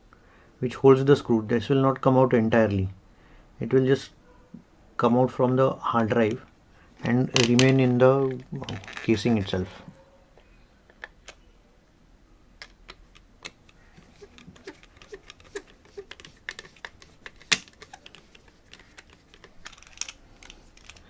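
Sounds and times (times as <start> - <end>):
screwdriver clicking on screws: 12.6 - 21.0.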